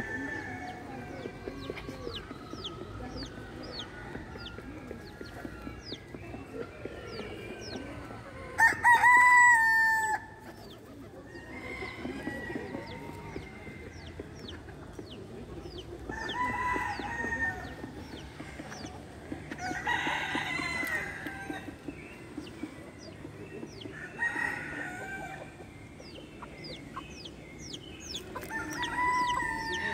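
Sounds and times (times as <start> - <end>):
chickens clucking: 0.0 - 29.9
chicken calls: 16.0 - 29.9.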